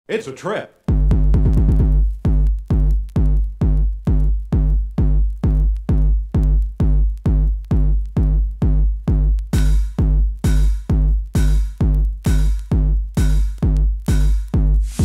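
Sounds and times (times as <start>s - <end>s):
drum machine kick drum: 0.9s - 15.0s
hissing cymbal hit: 14.2s - 15.0s.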